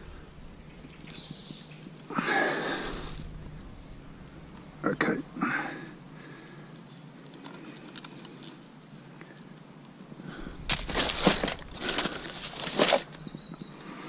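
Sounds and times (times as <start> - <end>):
rustling and scraping in fabric bag: 10.6 - 13.5.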